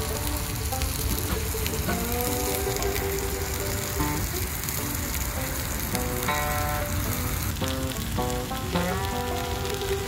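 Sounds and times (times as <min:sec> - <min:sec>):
background music: 0:00.0 - 0:10.0
pork sizzling on a griddle: 0:00.0 - 0:10.0.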